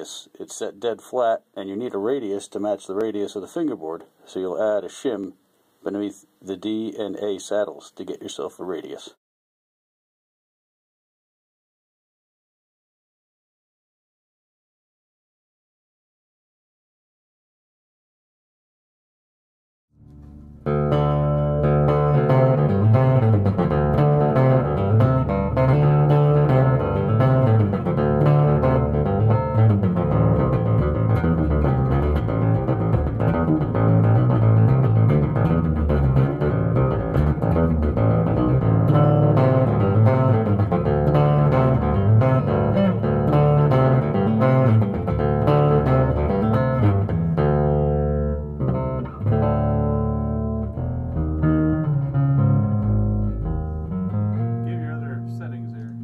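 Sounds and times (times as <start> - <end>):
electric bass notes: 20.0 - 56.0.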